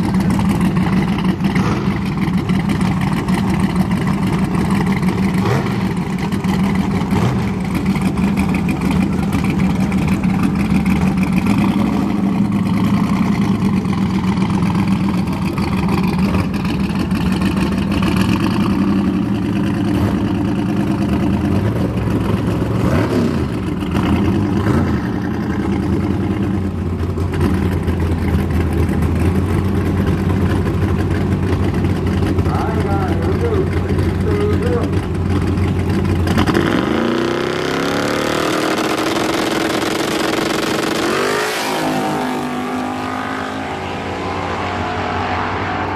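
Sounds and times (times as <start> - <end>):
truck engine idling: 0.0 - 36.8.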